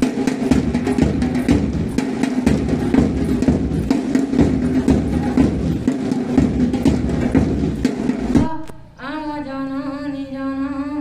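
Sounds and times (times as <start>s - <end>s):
marching drum beat: 0.0s - 8.6s.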